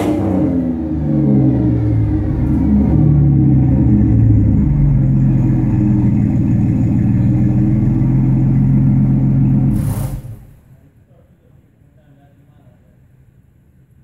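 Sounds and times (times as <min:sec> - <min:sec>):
car engine exhaust running: 0:00.0 - 0:10.7
brief hiss: 0:09.7 - 0:10.7.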